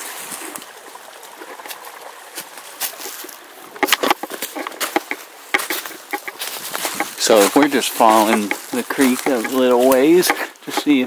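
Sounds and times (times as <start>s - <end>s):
creek trickling over stones: 0.0s - 11.0s
footsteps crunching dry leaves: 2.3s - 3.5s, 4.2s - 11.0s.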